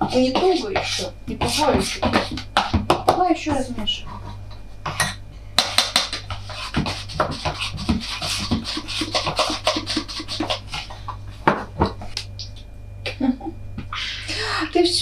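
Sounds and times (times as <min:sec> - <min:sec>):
spoon scraping a bowl: 0:00.0 - 0:02.8, 0:03.8 - 0:11.1.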